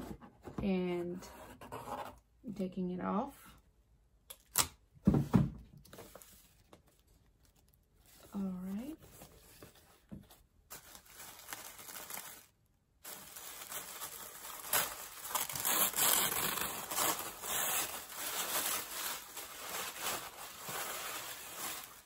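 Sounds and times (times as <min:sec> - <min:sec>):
tissue paper crinkling: 0:06.0 - 0:09.9, 0:10.7 - 0:22.0.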